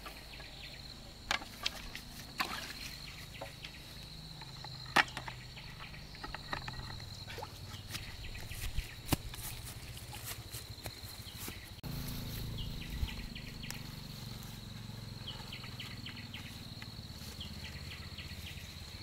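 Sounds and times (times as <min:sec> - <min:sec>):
high-pitched insect drone: 0:11.8 - 0:19.0.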